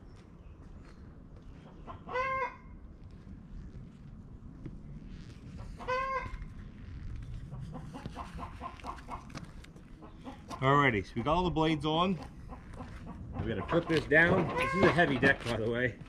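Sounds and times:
chicken squawking: 0:02.0 - 0:02.6, 0:12.4 - 0:15.0
chicken clucking: 0:07.5 - 0:09.3, 0:12.2 - 0:15.4.

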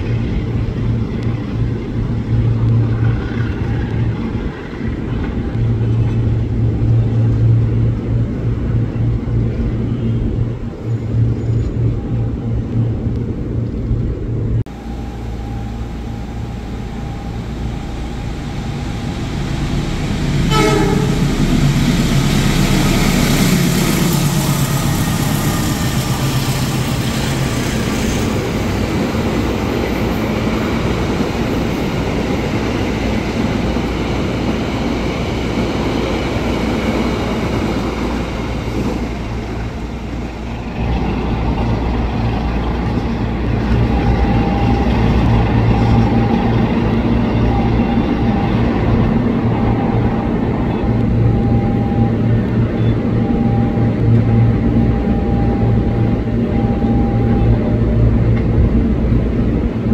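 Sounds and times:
diesel engine drone: 0:00.0 - 0:59.9
train rolling on tracks: 0:00.0 - 0:59.9
high tone: 0:14.7 - 0:25.5, 0:43.8 - 0:57.8.

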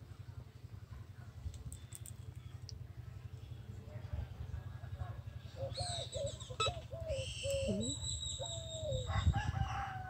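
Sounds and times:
rooster crowing: 0:08.8 - 0:10.0.

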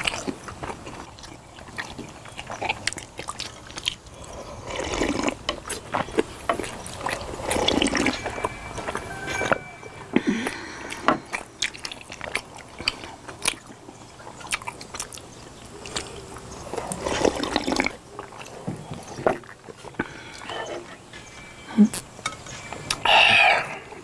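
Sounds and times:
chewing: 0:00.0 - 0:24.0
slurping drink: 0:04.2 - 0:09.5, 0:16.6 - 0:19.2.

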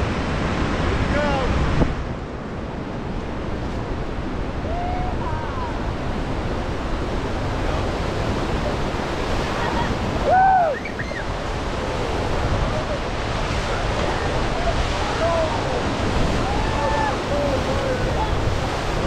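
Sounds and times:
whitewater rushing: 0:00.0 - 0:19.0
wind buffeting microphone: 0:00.0 - 0:19.0
person whooping: 0:09.6 - 0:11.2.

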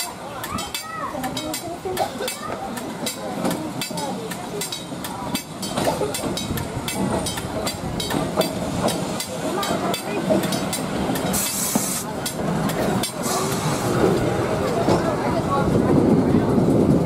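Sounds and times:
streetcar wheels rumbling on rail: 0:00.0 - 0:17.0
air hiss: 0:11.2 - 0:12.2.

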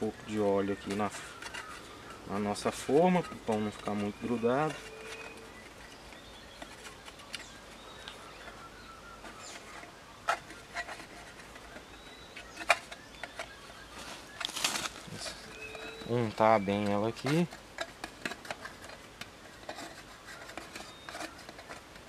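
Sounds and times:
birds chirping: 0:00.0 - 0:22.0
scraping rustle: 0:00.0 - 0:22.0.

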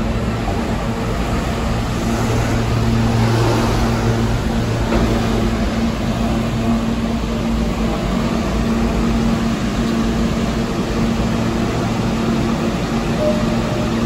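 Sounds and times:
constant hum: 0:00.0 - 0:14.0
subway train rumble: 0:00.0 - 0:14.0.

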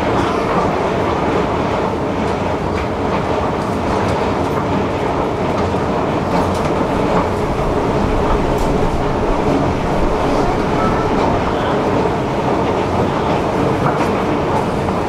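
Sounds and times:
escalator running: 0:05.2 - 0:15.0.

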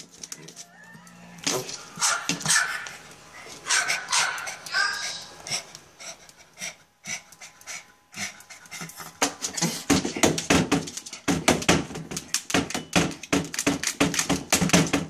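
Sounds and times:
dog panting fast: 0:02.6 - 0:10.3.

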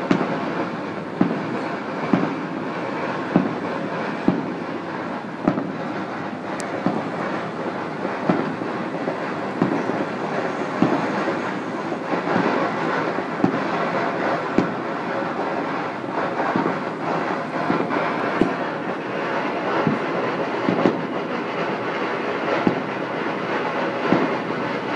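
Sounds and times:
fireworks and firecrackers banging: 0:00.0 - 0:24.9.

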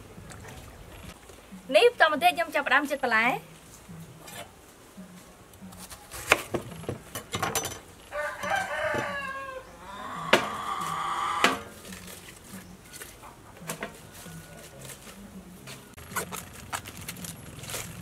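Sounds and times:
rooster crowing: 0:08.1 - 0:11.7
cabbage leaves pulled off: 0:16.0 - 0:18.0.

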